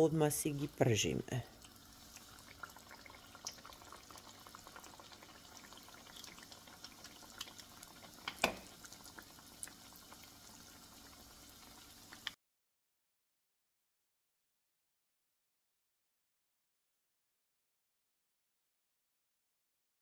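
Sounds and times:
dough sizzling in hot oil: 0:00.0 - 0:12.4.

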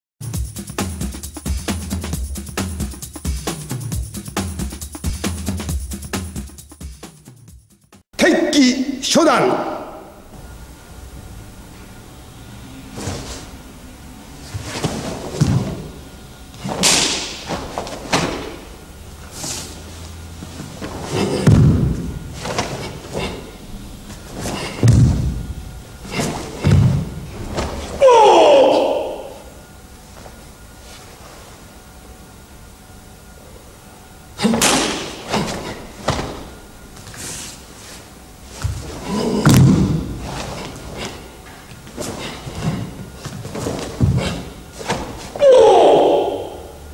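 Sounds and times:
bare feet thudding on wooden floor: 0:14.6 - 0:15.9, 0:20.4 - 0:23.5, 0:24.1 - 0:28.0, 0:34.7 - 0:37.2, 0:38.6 - 0:41.2, 0:41.9 - 0:45.3
fabric snapping: 0:16.6 - 0:18.6.

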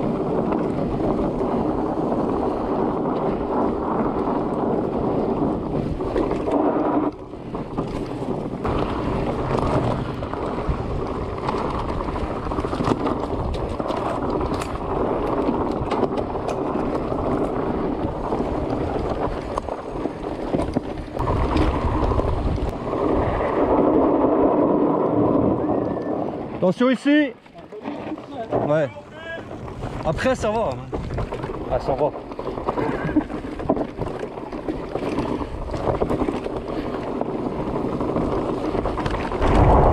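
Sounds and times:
bike clicks and rattles: 0:00.0 - 0:39.9
bike tyres rolling on dirt: 0:00.0 - 0:39.9
wind buffeting microphone: 0:00.0 - 0:39.9.

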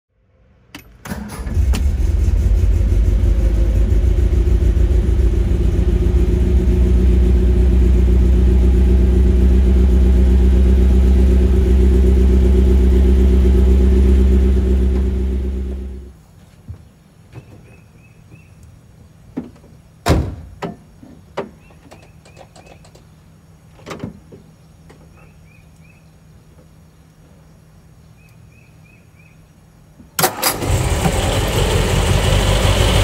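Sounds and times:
car engine cranking and idling: 0:00.8 - 0:16.2, 0:30.2 - 0:33.0.

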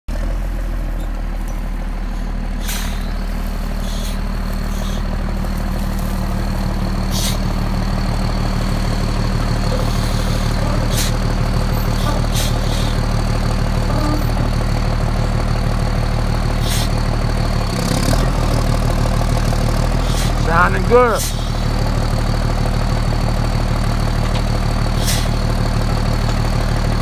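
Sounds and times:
diesel truck engine idling: 0:00.1 - 0:27.0
brief hisses: 0:02.6 - 0:03.0.

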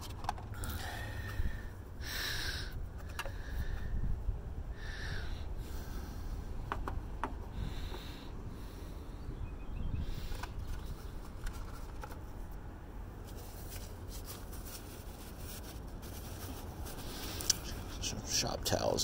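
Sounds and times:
rustling and clicks of handling: 0:00.0 - 0:00.7, 0:10.3 - 0:12.6
steady low rumble: 0:00.0 - 0:19.0.

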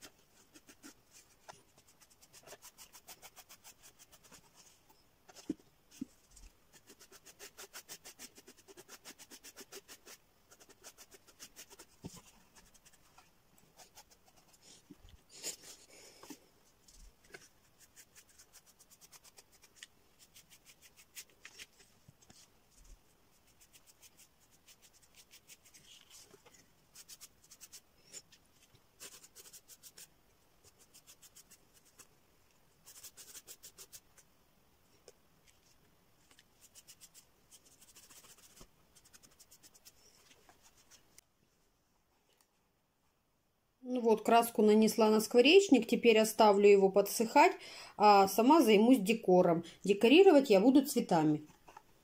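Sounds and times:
sponge dabbing on cardboard: 0:00.0 - 0:04.8, 0:05.4 - 0:15.8.

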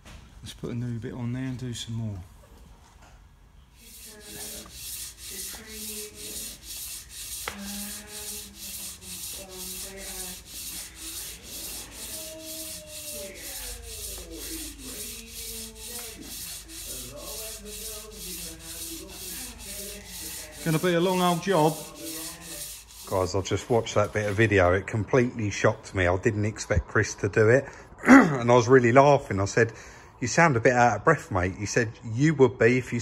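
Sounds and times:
sandpaper rasping on metal shaft: 0:03.8 - 0:24.4.

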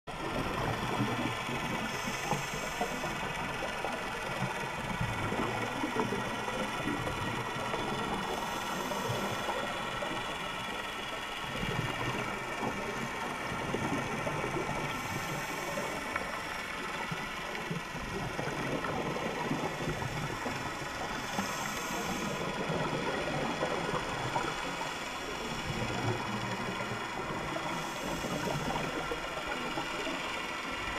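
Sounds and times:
underwater motor whine: 0:00.1 - 0:30.9
scuba regulator hiss: 0:21.2 - 0:22.5.

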